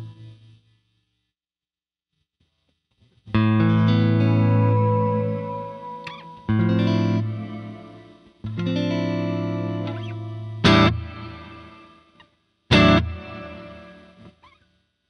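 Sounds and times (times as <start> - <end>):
electric guitar chords with reverb: 3.4 - 11.9, 12.7 - 14.3.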